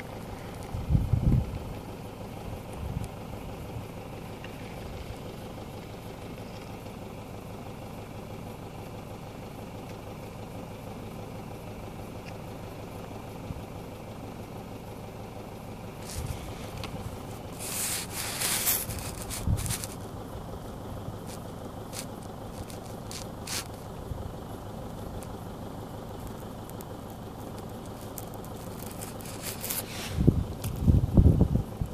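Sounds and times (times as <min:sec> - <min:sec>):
dry soil and grass scraping: 0:00.0 - 0:07.4, 0:15.9 - 0:31.9
steady low hum: 0:00.0 - 0:31.9
scattered clicks: 0:26.2 - 0:29.8.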